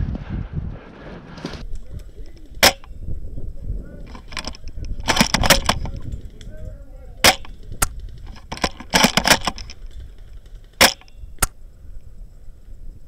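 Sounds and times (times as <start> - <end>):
airsoft guns firing: 2.6 - 2.9, 7.2 - 8.1, 10.5 - 11.2.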